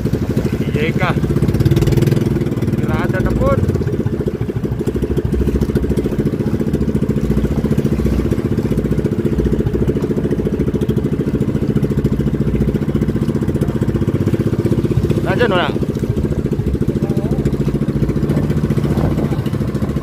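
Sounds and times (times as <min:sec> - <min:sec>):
boat engine running: 0:00.0 - 0:20.0.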